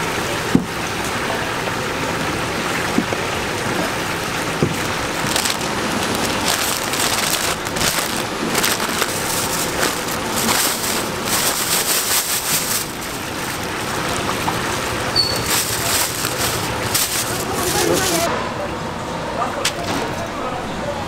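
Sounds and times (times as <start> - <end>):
paper and plastic bag crinkling: 4.4 - 18.3.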